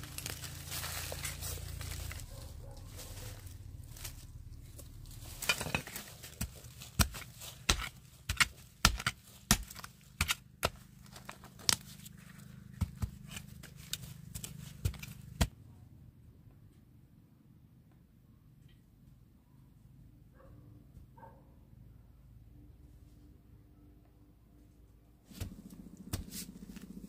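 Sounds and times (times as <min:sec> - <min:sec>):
low steady hum: 0:00.0 - 0:20.2.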